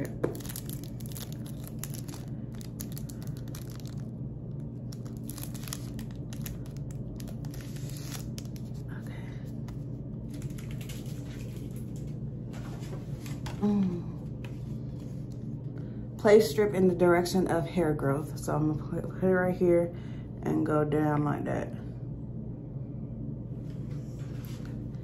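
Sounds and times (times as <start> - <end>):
wax strips crinkling and tearing: 0.0 - 12.1
steady low hum: 0.0 - 25.0.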